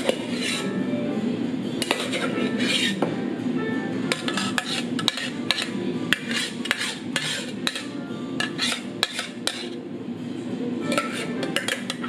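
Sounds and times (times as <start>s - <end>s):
dishes clinking and clattering: 0.0s - 0.6s, 1.7s - 3.1s, 4.1s - 9.8s, 10.8s - 12.0s.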